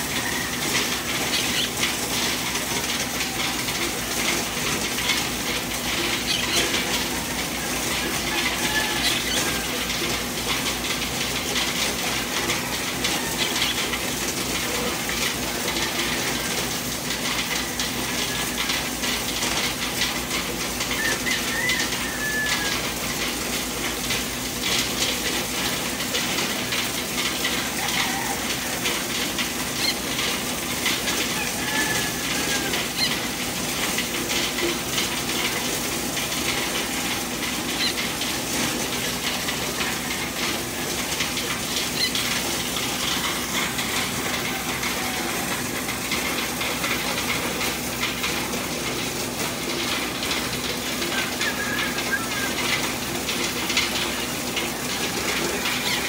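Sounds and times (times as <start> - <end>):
corn sheller humming: 0.0 - 56.0
rattle of corn being threshed: 0.0 - 56.0.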